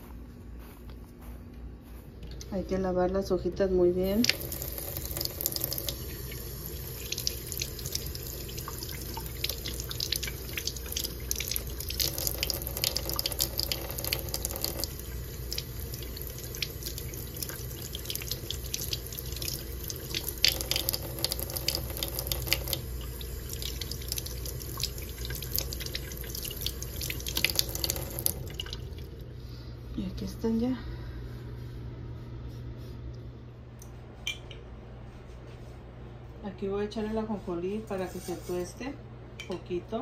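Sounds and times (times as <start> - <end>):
faucet running into sink: 4.1 - 29.1.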